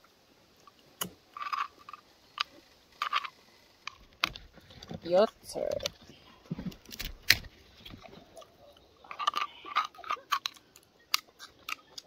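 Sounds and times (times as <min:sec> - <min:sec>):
spoon clicking and scraping in shell: 0:09.0 - 0:12.0.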